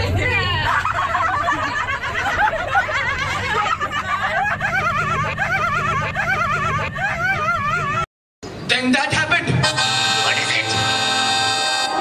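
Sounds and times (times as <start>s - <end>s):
women laughing and calling out: 0.0s - 8.1s.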